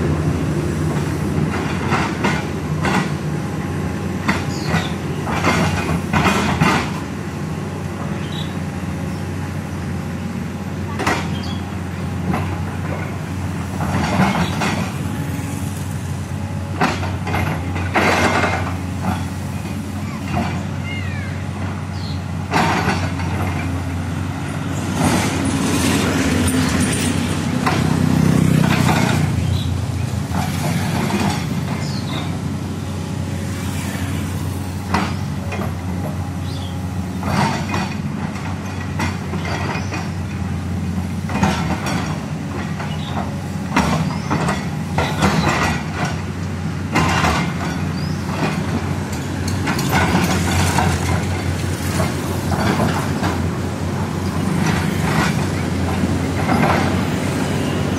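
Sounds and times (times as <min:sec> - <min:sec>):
excavator diesel engine running: 0:00.0 - 0:57.9
metal clanks and knocks: 0:04.2 - 0:07.0, 0:12.2 - 0:15.1, 0:16.8 - 0:19.3, 0:22.4 - 0:23.9, 0:26.3 - 0:32.4, 0:37.2 - 0:40.5, 0:41.2 - 0:46.3, 0:46.9 - 0:53.5, 0:54.6 - 0:57.1.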